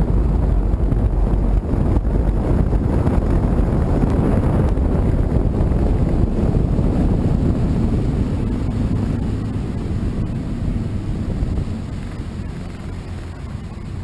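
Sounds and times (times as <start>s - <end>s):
outboard motor running: 0.0s - 14.0s
wind rumbling on microphone: 0.0s - 14.0s.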